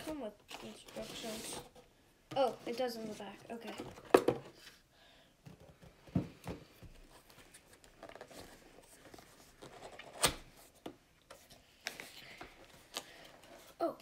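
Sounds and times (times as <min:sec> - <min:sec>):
cardboard rustling: 0:00.0 - 0:04.7.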